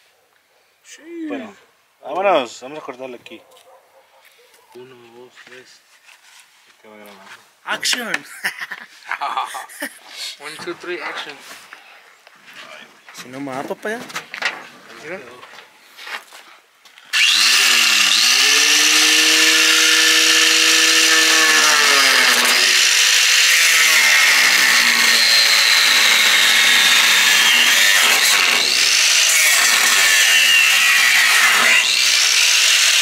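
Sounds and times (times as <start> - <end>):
angle grinder cutting sheet metal: 17.1 - 33.0.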